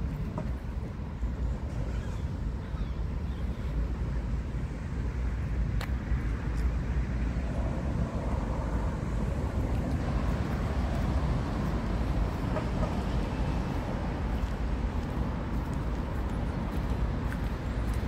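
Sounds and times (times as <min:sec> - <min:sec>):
road traffic: 0:00.0 - 0:18.0
heels clicking on asphalt: 0:09.3 - 0:18.0.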